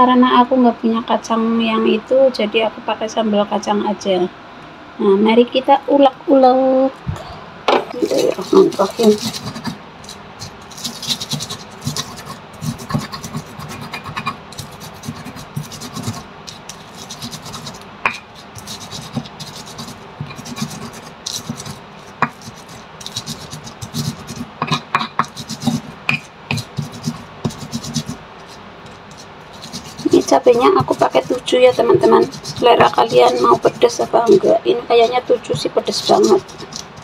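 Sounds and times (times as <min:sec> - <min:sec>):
stone pestle grinding in mortar: 0:07.9 - 0:37.0.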